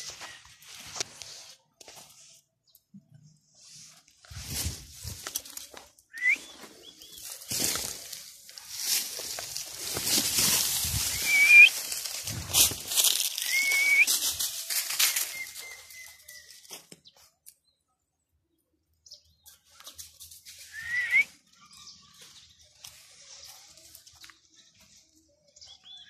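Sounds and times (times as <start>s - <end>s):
footsteps crunching dry leaves: 0.0s - 2.2s, 3.8s - 17.2s
high rising whistle-like calls: 6.1s - 6.6s, 11.1s - 11.8s, 13.4s - 14.2s, 20.6s - 21.4s.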